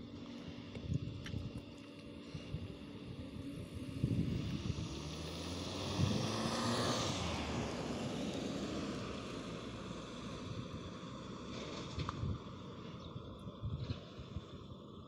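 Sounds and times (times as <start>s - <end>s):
vehicle passing: 3.1s - 12.1s.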